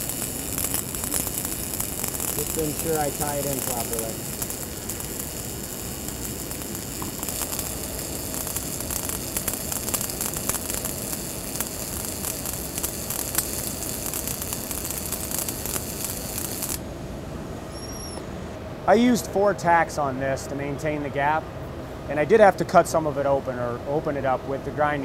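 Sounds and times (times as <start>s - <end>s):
welding arc crackling: 0.0s - 16.9s
faint steady hum: 0.0s - 25.0s.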